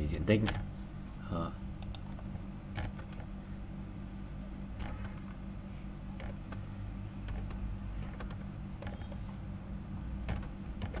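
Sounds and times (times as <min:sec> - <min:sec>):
low hum: 0:00.0 - 0:11.0
keyboard key clicks: 0:10.3 - 0:11.0.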